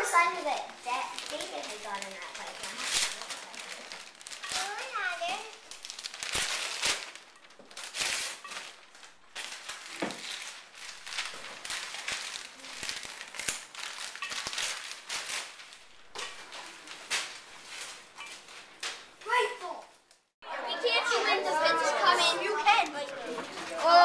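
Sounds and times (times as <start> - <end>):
wrapping paper tearing: 0.0 - 18.7.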